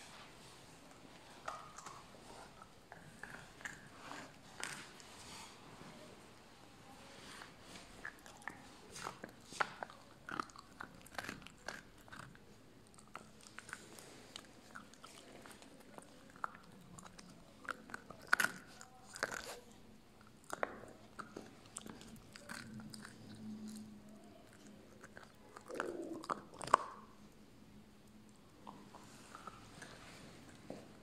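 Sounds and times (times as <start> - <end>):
puppy crunching on a bone: 1.2 - 5.3, 7.6 - 27.3.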